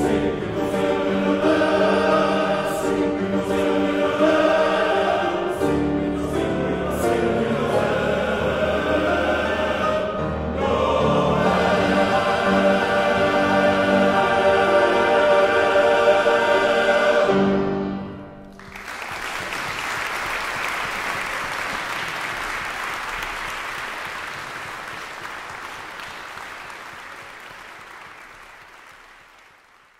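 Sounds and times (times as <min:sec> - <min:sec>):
men's chorus singing: 0:00.0 - 0:18.0
audience applause: 0:18.5 - 0:29.9.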